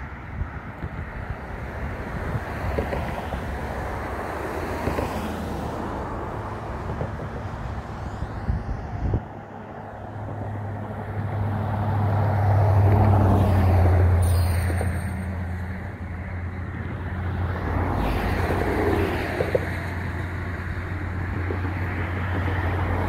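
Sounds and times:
wind buffeting microphone: 0.0 - 14.0
motor vehicle engine hum: 0.0 - 23.0.

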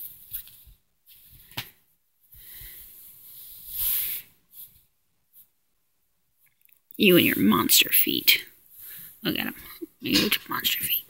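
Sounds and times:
hand rubbing cat fur: 2.7 - 5.6.

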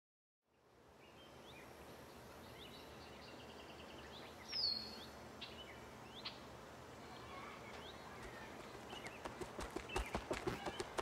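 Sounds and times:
small birds chirping: 0.5 - 11.0.

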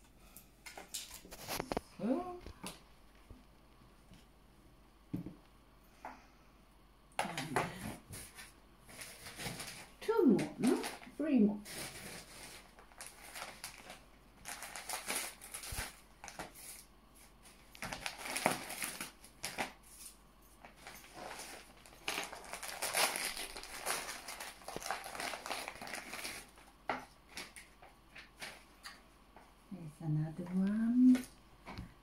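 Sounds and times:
wrapping paper rustling and crinkling: 0.9 - 1.9, 7.8 - 28.7.

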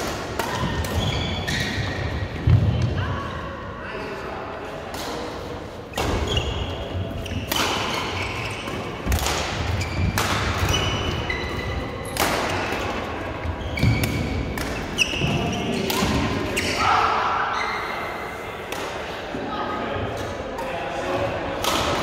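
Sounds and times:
shoe squeaks on court: 1.0 - 1.9, 6.0 - 9.0, 13.6 - 15.9
rackets striking shuttlecock: 7.3 - 11.2, 13.8 - 15.0.

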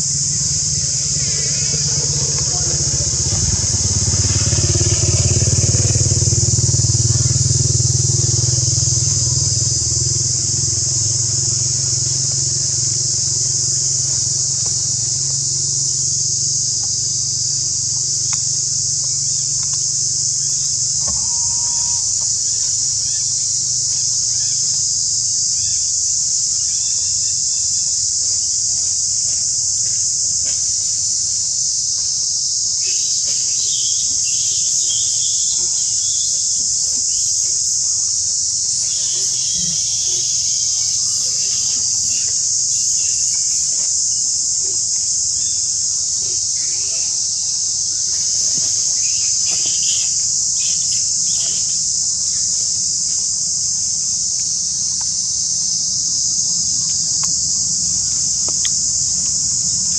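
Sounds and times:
faint chirps: 0.0 - 15.4, 20.5 - 23.5, 38.7 - 43.8
low engine rumble: 0.0 - 23.7
shrill insect chorus: 0.0 - 59.9.

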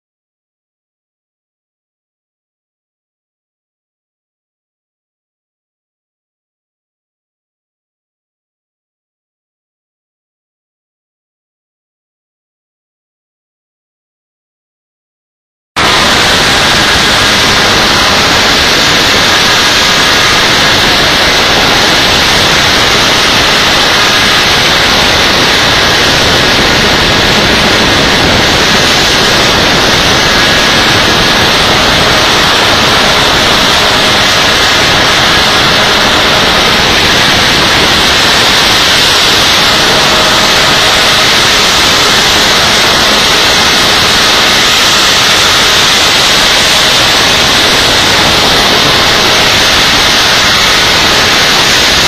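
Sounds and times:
pulsejet engine running: 15.8 - 52.0.

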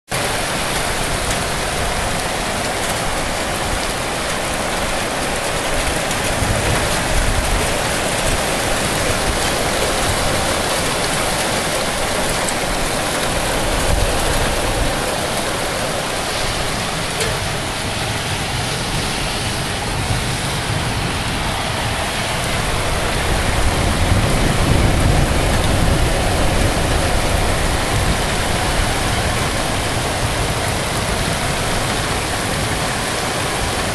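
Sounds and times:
heavy rain pouring: 0.0 - 33.9.

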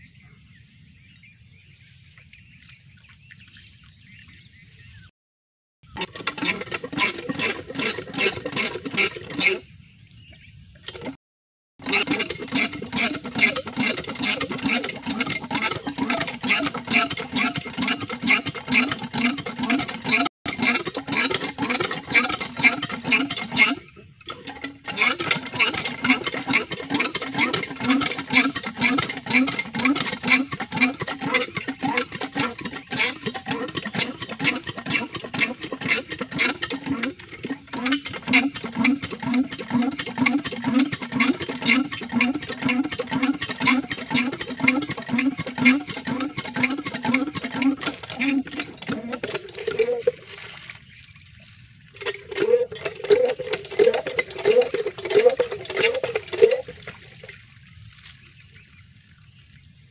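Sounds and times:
small diesel engine running: 5.9 - 9.6, 11.8 - 50.0.

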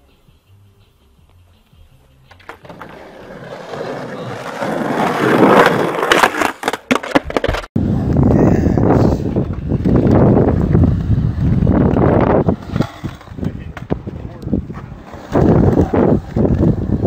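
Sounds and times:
skateboard wheels rolling on concrete: 0.0 - 17.0
skateboard clacking: 2.2 - 7.6, 9.2 - 17.0.

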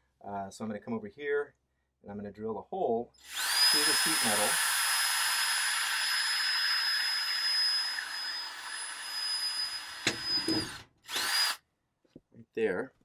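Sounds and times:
cordless drill whining: 3.2 - 11.6.

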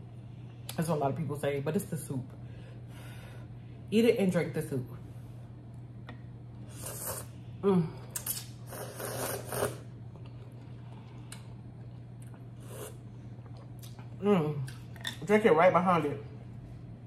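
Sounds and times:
person slurping noodles: 6.7 - 7.4, 8.2 - 9.9.

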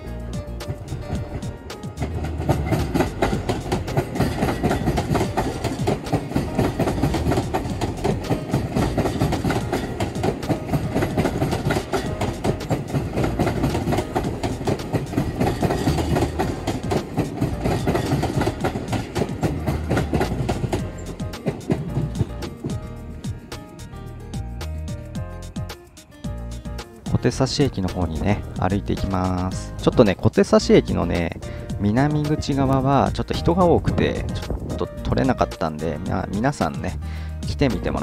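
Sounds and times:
electric train passing: 0.0 - 33.0
wheels clattering over rail joints: 0.4 - 23.9.

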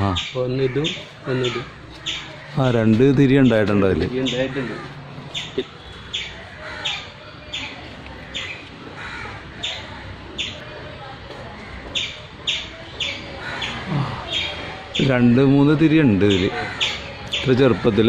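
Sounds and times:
bird calling: 0.0 - 10.8, 11.6 - 18.0.

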